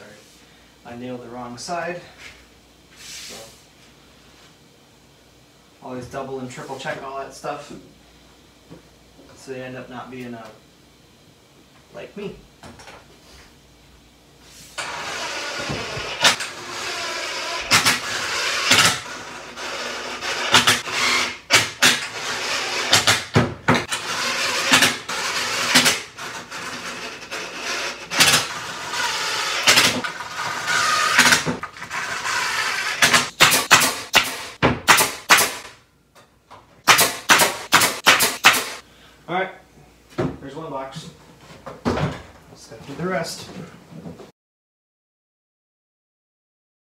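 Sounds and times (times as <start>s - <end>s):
cordless drill running: 14.8s - 34.6s
brad nailer firing: 14.8s - 35.8s, 36.8s - 38.8s.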